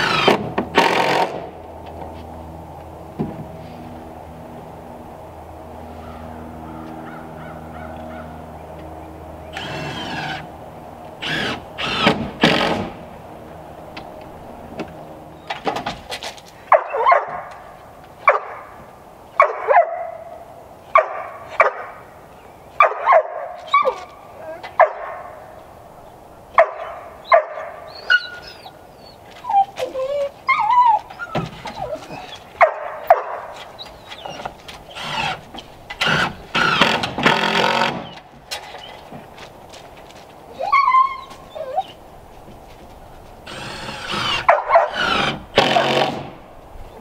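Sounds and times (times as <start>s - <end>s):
dog barking: 16.7s - 17.5s, 18.2s - 18.7s, 19.4s - 20.3s, 20.9s - 22.0s, 22.8s - 24.0s, 24.8s - 25.4s, 26.6s - 27.8s, 32.6s - 33.6s, 44.5s - 45.0s
dog whining and whimpering: 27.9s - 32.5s, 40.6s - 42.0s.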